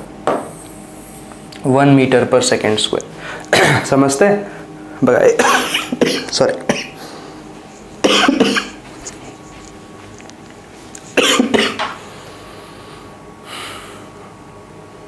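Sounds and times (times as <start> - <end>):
man coughing: 3.4 - 4.0, 5.2 - 7.2, 8.0 - 9.2, 11.1 - 12.0.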